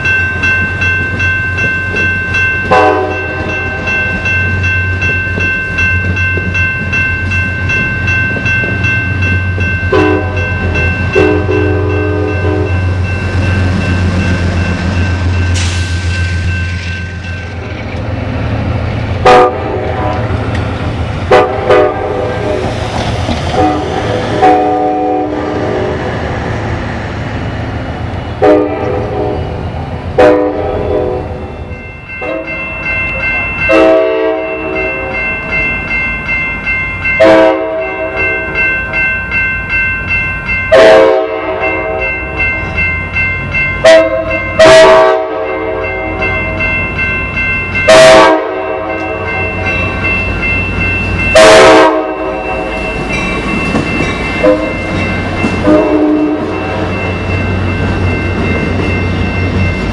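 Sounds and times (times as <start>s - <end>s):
ringing bell: 0.0s - 18.2s, 31.4s - 59.9s
train cars rolling past: 0.0s - 59.9s
train horn blasts: 2.7s - 3.4s, 9.9s - 10.5s, 11.2s - 12.8s, 19.2s - 20.4s, 21.3s - 22.6s, 23.5s - 25.9s, 28.4s - 29.6s, 30.2s - 31.5s, 32.2s - 32.6s, 33.7s - 35.2s, 37.2s - 38.2s, 40.7s - 42.1s, 43.8s - 45.9s, 47.9s - 49.3s, 51.4s - 52.4s, 54.4s - 54.8s, 55.6s - 56.7s.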